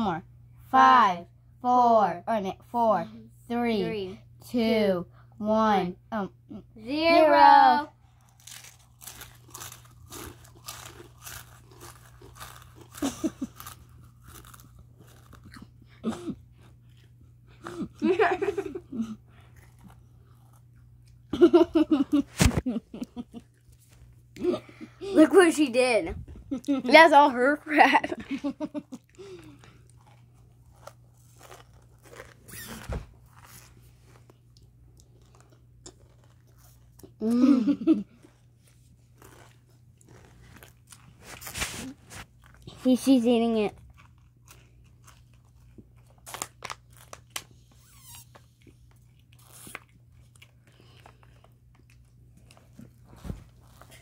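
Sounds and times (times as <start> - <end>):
chewing crunchy chips: 8.0 - 21.3, 28.8 - 54.0.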